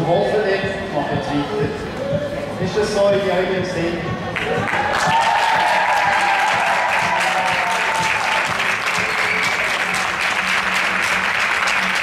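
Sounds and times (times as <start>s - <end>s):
crowd applauding: 4.4s - 12.0s.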